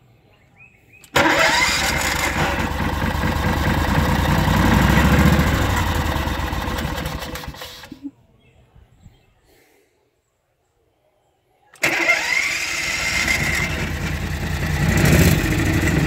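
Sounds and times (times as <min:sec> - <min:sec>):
golf cart engine starting and dying: 0:01.0 - 0:08.0, 0:11.8 - 0:16.0.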